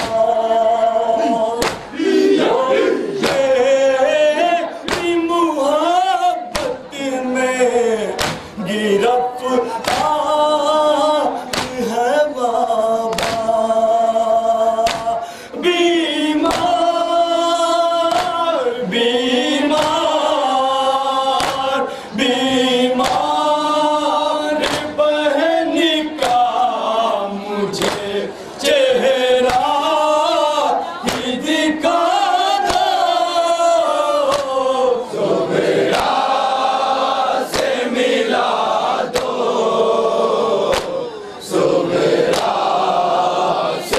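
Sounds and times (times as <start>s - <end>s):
man singing into a microphone: 0.0s - 2.0s, 3.1s - 35.2s
men chanting: 0.0s - 43.9s
hands striking chests: 1.6s - 1.9s, 39.1s - 39.4s.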